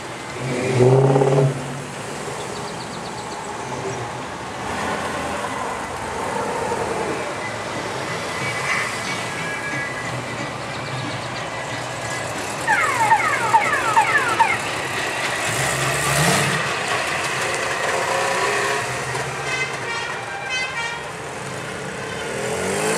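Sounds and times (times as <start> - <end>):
cars driving past: 0.0 - 20.2, 21.0 - 22.9
car engine revving: 0.2 - 2.4, 12.7 - 16.9, 22.2 - 22.9
falling high tones: 12.6 - 14.8.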